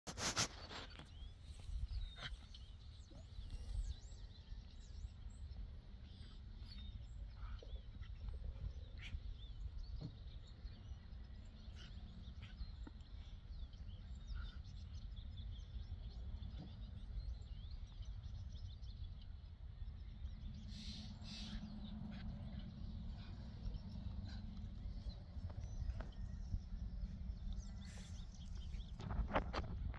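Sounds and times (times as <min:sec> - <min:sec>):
soft clicks and scuffs: 0:00.1 - 0:02.4
low rumble: 0:19.9 - 0:29.9.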